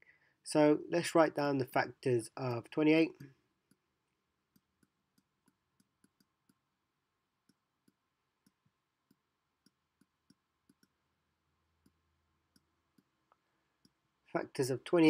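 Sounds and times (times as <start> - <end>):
stylus tapping on tablet: 7.4 - 11.0.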